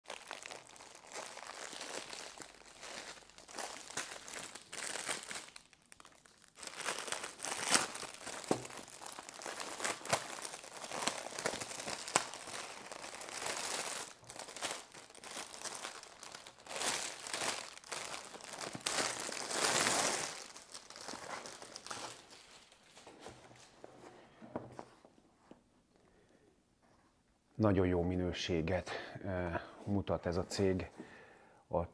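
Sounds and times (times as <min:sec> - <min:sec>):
plastic film crinkling: 0:00.0 - 0:23.7.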